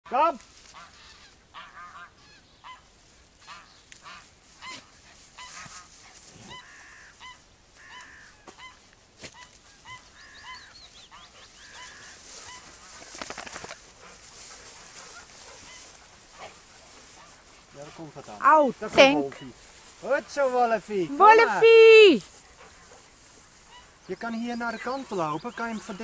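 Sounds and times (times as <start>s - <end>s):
goose honking: 0.6s - 13.0s, 14.7s - 21.8s, 23.6s - 24.0s.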